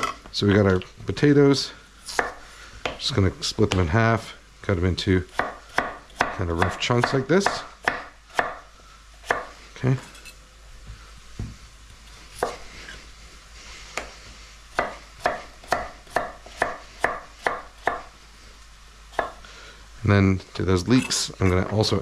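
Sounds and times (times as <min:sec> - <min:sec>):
knife chopping on wooden board: 0:05.3 - 0:08.6, 0:09.2 - 0:09.5, 0:14.8 - 0:18.1, 0:19.2 - 0:19.4.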